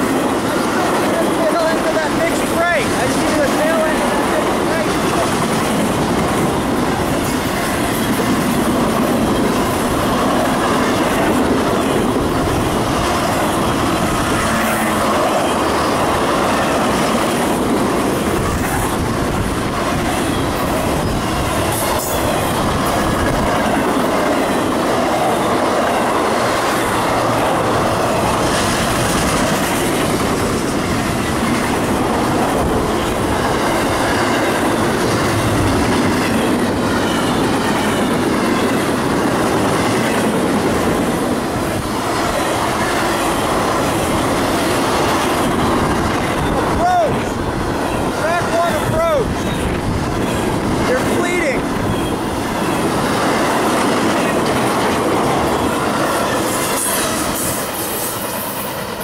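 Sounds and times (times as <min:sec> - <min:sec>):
freight train wheels rumbling on rail: 0:00.0 - 0:59.0
wheels clacking over rail joints: 0:00.0 - 0:59.0.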